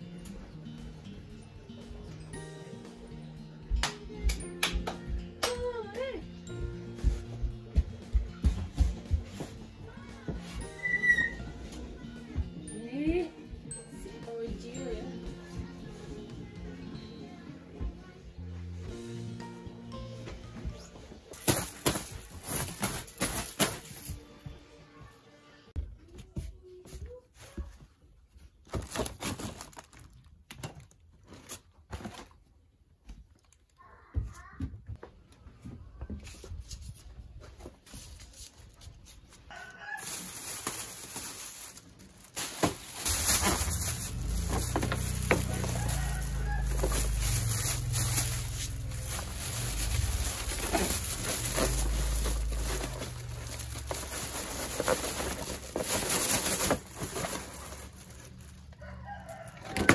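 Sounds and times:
knocks of household things moved: 21.2 - 24.2, 40.0 - 58.5
rooster crowing: 39.5 - 40.4, 44.0 - 48.8, 58.7 - 59.9
low rumble: 43.1 - 55.7.

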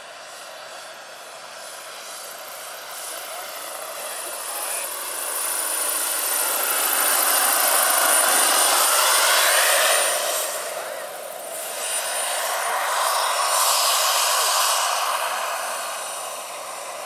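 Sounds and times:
turbine whine: 0.0 - 17.0
rotor rushing noise: 2.3 - 13.3.

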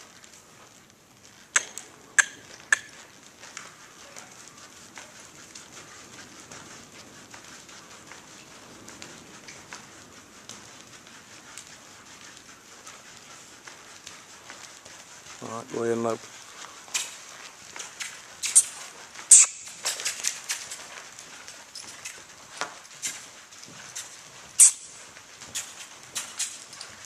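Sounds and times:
faint hoofbeats on dirt: 0.0 - 27.0
sharp clicks: 1.6 - 2.9.

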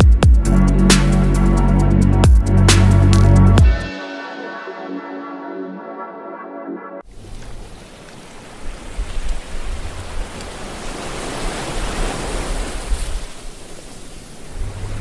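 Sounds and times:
ocean waves rushing: 7.0 - 15.0
low rumble: 14.5 - 15.0.

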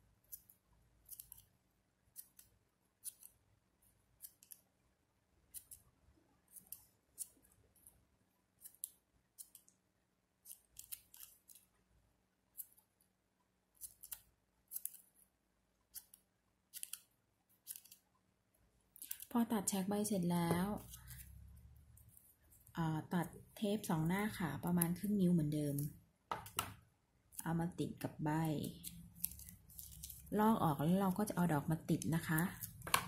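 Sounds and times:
scissors snipping ribbon: 2.1 - 3.4, 10.4 - 11.6, 15.9 - 18.0.

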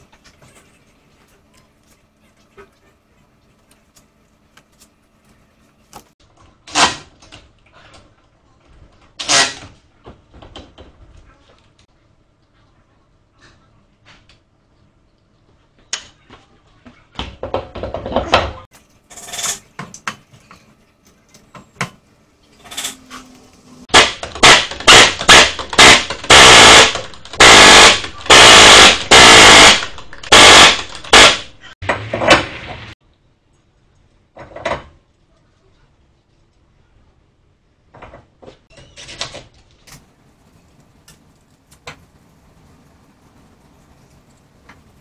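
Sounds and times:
impact wrench hammering lug nuts: 23.9 - 31.5.

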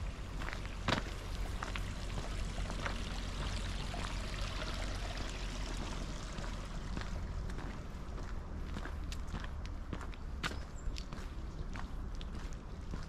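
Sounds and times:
footsteps on pavement: 0.0 - 4.2, 5.7 - 13.0
water running: 1.8 - 6.9.

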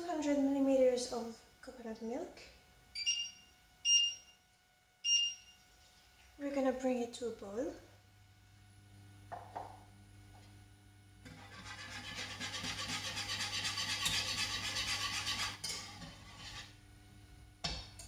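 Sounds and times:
whisk beating in metal saucepan: 11.3 - 16.7.

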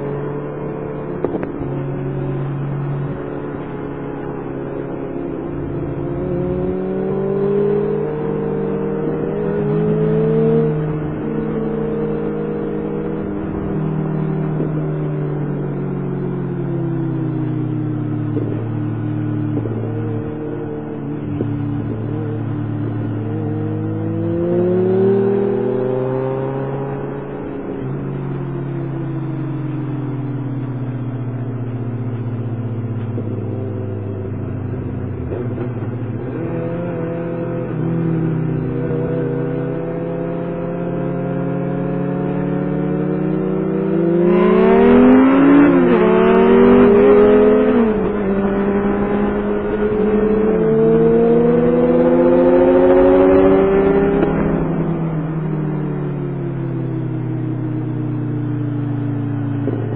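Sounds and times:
motorcycle engine: 0.0 - 59.9
rush of wind noise: 44.3 - 57.3.

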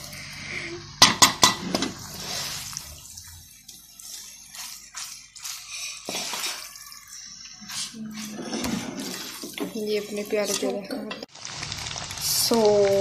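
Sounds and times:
wet shuffling of pasta: 2.0 - 13.0
utensil scraping a pan: 4.0 - 11.3.

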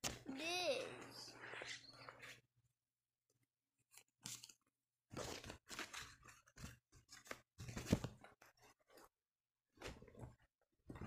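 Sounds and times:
paper booklets crinkling: 3.9 - 9.1.

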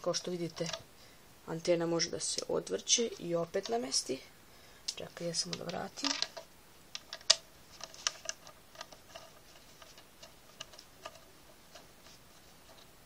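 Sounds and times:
small plastic clicks and taps: 4.9 - 11.9.

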